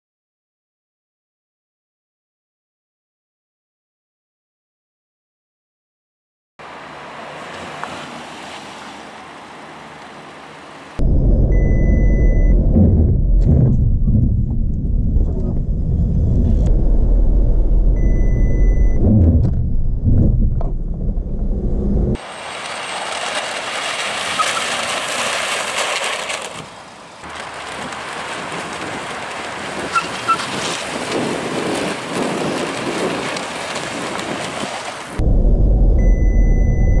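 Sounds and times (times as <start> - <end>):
car cabin rumble: 11.0 - 22.2, 35.2 - 37.0
wind on microphone: 11.0 - 22.2, 27.6 - 37.0
electronic warning beep: 11.5 - 12.6, 18.0 - 19.0, 36.0 - 37.0.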